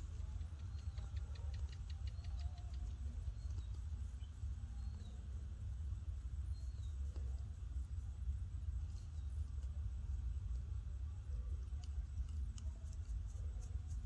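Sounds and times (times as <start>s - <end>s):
quick run of high ticks: 0.0s - 4.0s
low rumble of wind on microphone: 0.0s - 14.0s.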